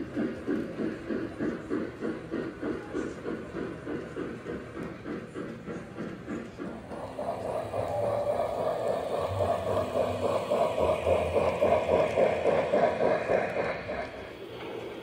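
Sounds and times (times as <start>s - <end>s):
toy train humming and rattling: 0.0s - 15.0s.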